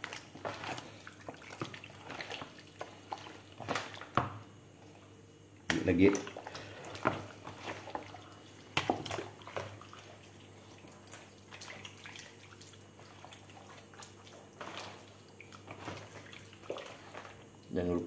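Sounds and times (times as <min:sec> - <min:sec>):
hands squelching in marinade: 0:00.0 - 0:04.2, 0:05.7 - 0:17.6.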